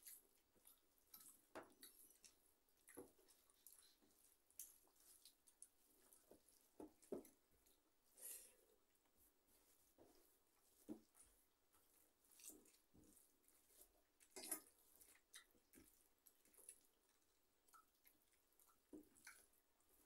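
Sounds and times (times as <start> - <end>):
chewing: 0.0 - 8.9, 9.6 - 20.0
fingers mixing food on steel plates: 9.0 - 20.0.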